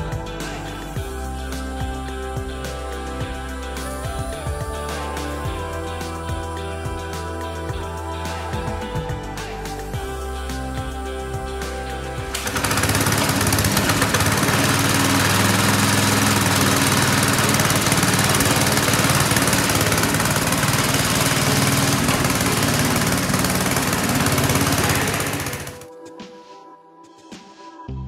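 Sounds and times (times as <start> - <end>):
small petrol engine running: 12.3 - 25.9.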